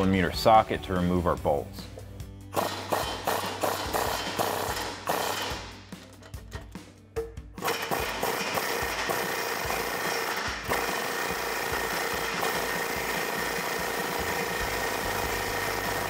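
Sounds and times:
air wrench running: 2.5s - 6.7s, 7.6s - 16.0s.

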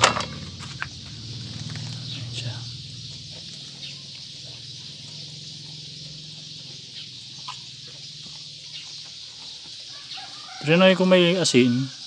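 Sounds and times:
goat chewing: 1.4s - 10.7s.

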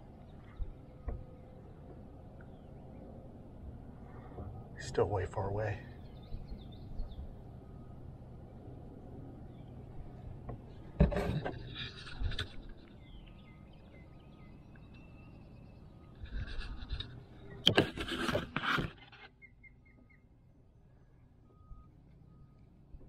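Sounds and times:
knocks and scrapes of handling: 10.4s - 13.0s, 16.2s - 19.4s.

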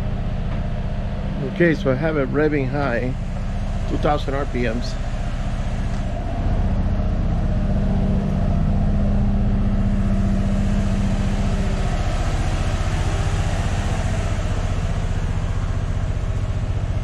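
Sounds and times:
engine at fast idle: 0.0s - 17.0s.

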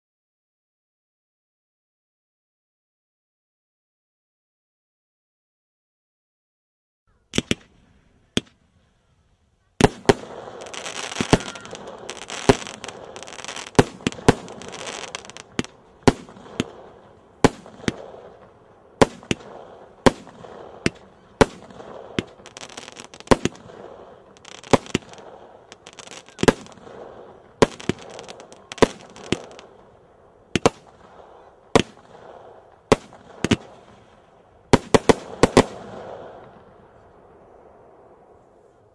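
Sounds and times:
volley of firework shots: 7.3s - 8.6s, 9.8s - 38.5s
hissing crackle: 9.8s - 30.0s
firework bangs: 9.8s - 38.3s.

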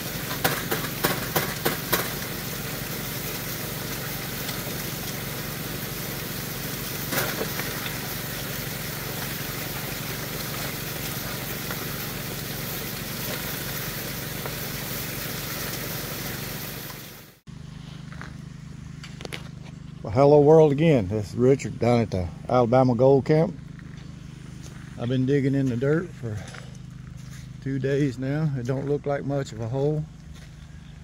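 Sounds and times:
gravel clattering into hopper: 0.0s - 14.7s
water rushing through sluice: 0.0s - 17.4s
small pump engine running: 0.0s - 31.0s.

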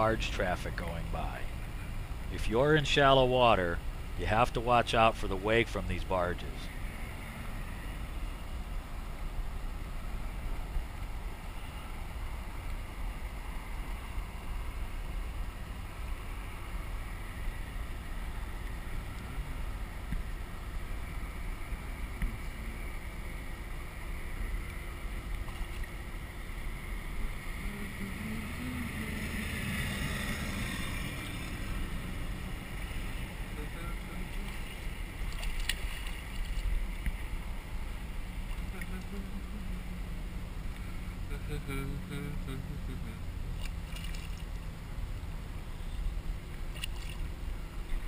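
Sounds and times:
river water rushing: 0.0s - 48.0s.

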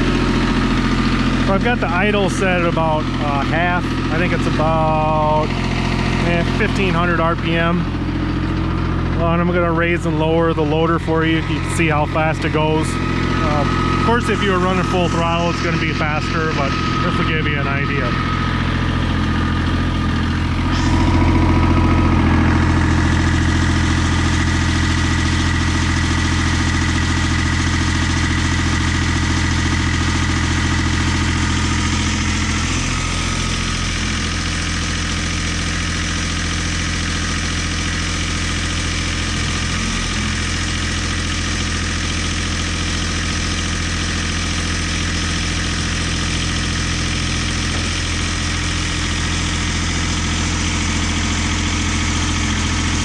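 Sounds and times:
diesel tractor engine running: 0.0s - 53.0s
hydraulics raising a loader: 13.0s - 23.4s.

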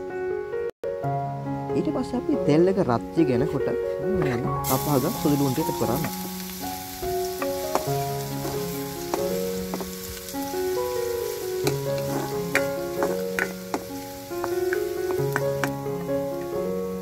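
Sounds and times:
soft background music: 0.0s - 17.0s
garlic sizzling in oil: 4.6s - 17.0s.

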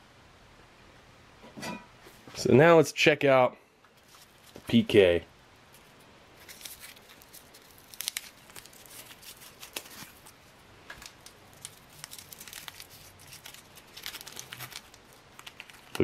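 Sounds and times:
paper wrapper crinkling and tearing: 4.0s - 4.8s, 5.7s - 16.0s.

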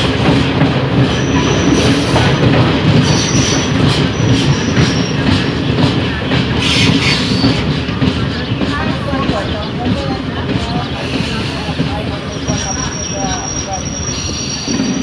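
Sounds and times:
train wheels rumbling on rail: 0.0s - 15.0s
high wheel squeals: 1.1s - 2.4s, 11.0s - 15.0s.

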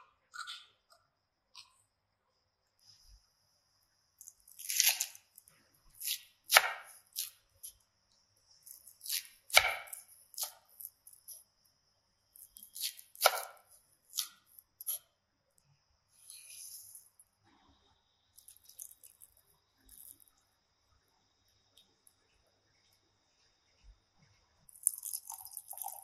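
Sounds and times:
knife slicing onions on wood board: 6.0s - 7.4s, 8.7s - 10.6s, 12.8s - 15.0s.

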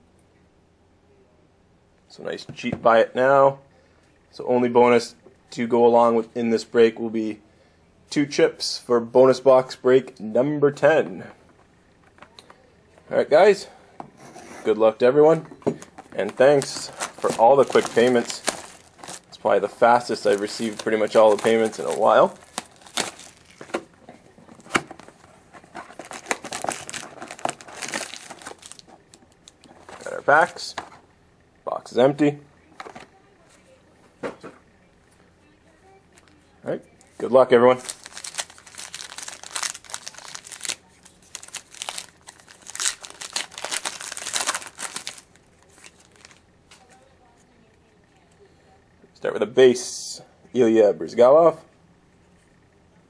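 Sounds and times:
crinkling and tearing of wrap: 16.2s - 23.8s, 25.9s - 30.2s, 37.7s - 46.4s.

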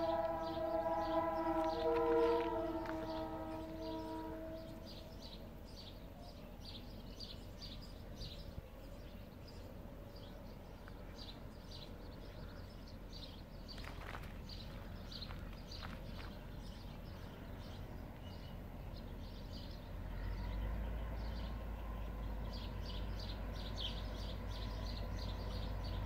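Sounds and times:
distant locomotive horn: 0.0s - 6.4s, 14.6s - 26.0s.

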